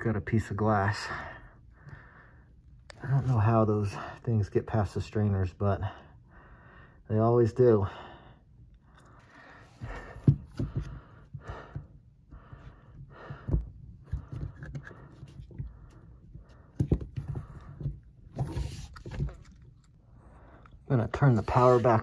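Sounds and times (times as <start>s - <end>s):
plastic clicks and knocks: 13.4s - 15.7s, 16.7s - 19.6s.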